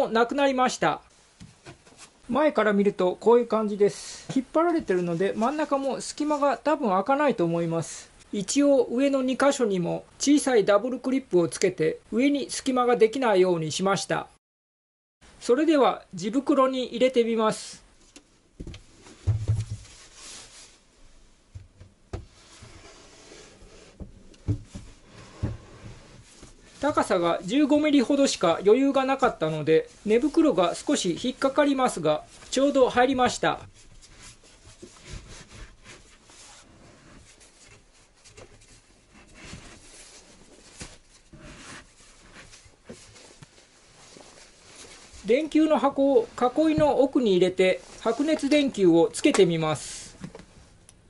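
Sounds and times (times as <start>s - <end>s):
wooden knocks and thumps: 18.6s - 20.0s, 21.5s - 22.4s, 23.9s - 26.5s
wooden frame scraping: 22.2s - 26.9s
fabric cover rustling: 22.3s - 48.8s.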